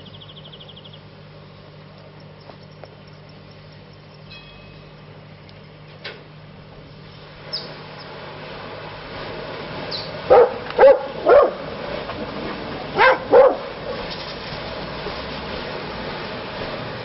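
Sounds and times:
low background hum: 0.0s - 17.0s
dog barking: 10.3s - 11.6s, 13.0s - 13.7s.

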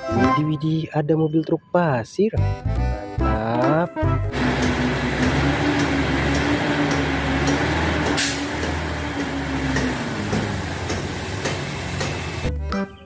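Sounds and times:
truck engine running: 4.3s - 12.5s.

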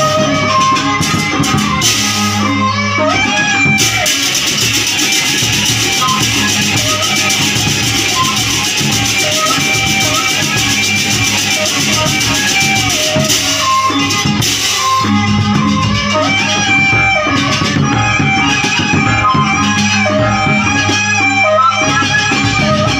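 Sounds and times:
large barrel drums: 0.0s - 21.1s
bamboo flute melody: 0.0s - 22.9s
percussion ensemble: 0.0s - 22.9s.

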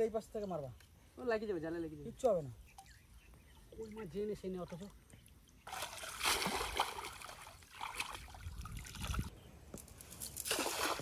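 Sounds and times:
muddy water splashing and sloshing: 2.6s - 9.3s, 10.4s - 11.0s.

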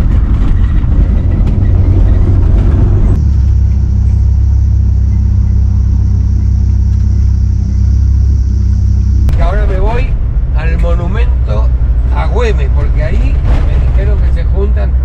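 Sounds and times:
vehicle engine and road noise: 0.0s - 15.0s.

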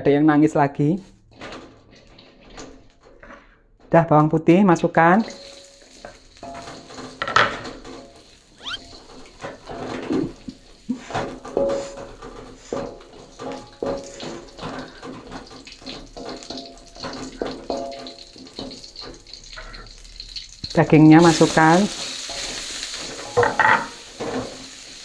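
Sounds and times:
spatula scraping in wok: 5.3s - 19.8s.

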